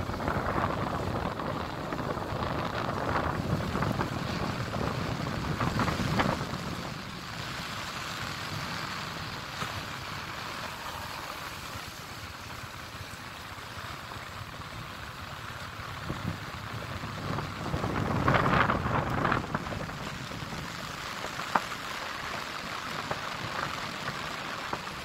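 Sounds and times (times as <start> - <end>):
wind buffeting microphone: 0.0 - 9.5, 15.9 - 21.0
rain hissing on wet road: 0.0 - 25.0.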